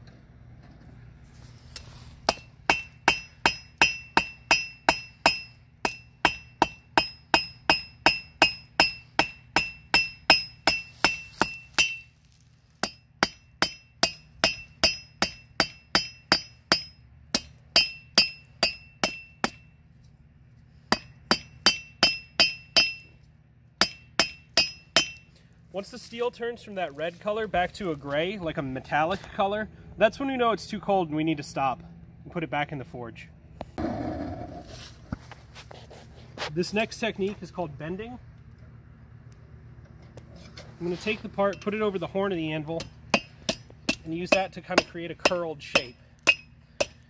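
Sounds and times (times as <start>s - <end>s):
hammer striking steel on anvil: 2.3s - 12.1s, 12.8s - 19.8s, 20.9s - 23.2s, 23.8s - 25.3s, 42.4s - 47.0s.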